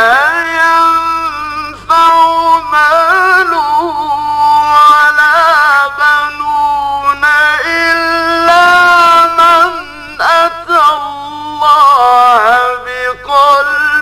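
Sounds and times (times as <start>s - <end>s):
man reciting melodically: 0.0s - 14.0s.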